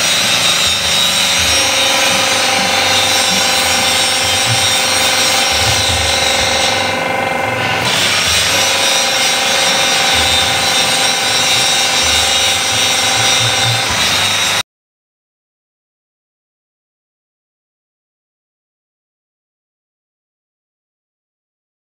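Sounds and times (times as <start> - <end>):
angle grinder grinding metal: 0.0 - 14.6
hydraulic power pack running: 0.0 - 14.6.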